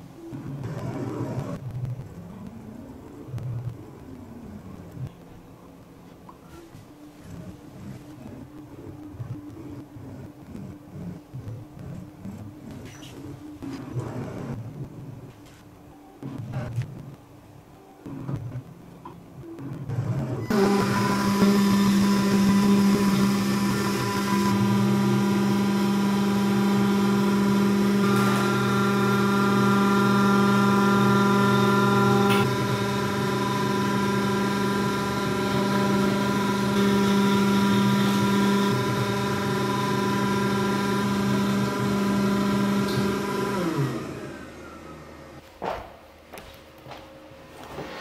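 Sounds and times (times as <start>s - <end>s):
cnc spindle whine: 20.0s - 45.4s
milling cutting aluminium: 20.5s - 43.9s.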